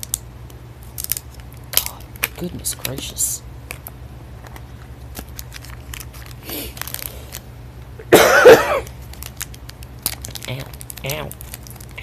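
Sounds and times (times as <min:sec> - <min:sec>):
woman coughing: 0:08.0 - 0:08.9.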